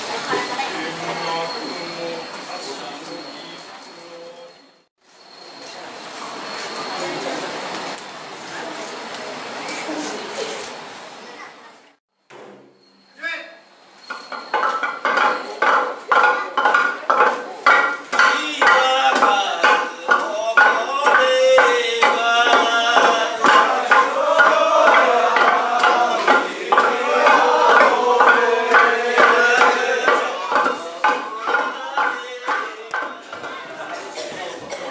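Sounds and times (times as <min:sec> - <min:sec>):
wooden pestles pounding rice: 0:14.1 - 0:33.9
men chanting: 0:18.1 - 0:33.9.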